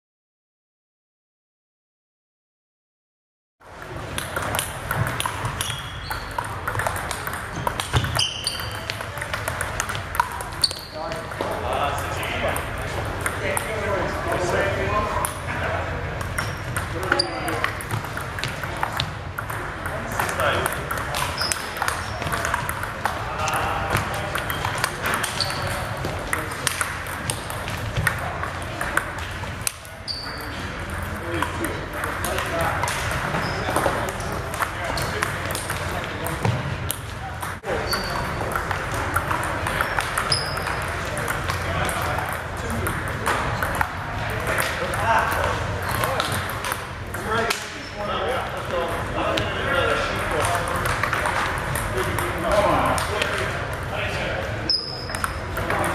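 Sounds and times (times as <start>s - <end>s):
table tennis balls clicking: 3.8s - 14.6s, 16.1s - 47.7s, 49.9s - 53.9s, 54.7s - 55.9s
short high squeaks: 8.0s - 8.9s, 10.6s - 11.0s, 25.3s - 25.8s, 30.0s - 30.6s, 37.8s - 38.4s.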